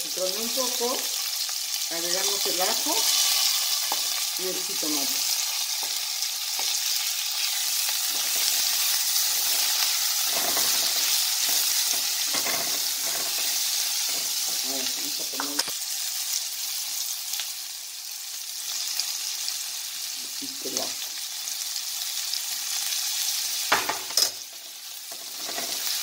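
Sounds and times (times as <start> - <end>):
onion and bacon sizzling: 0.0 - 26.0
spatula scraping pan: 7.4 - 14.7.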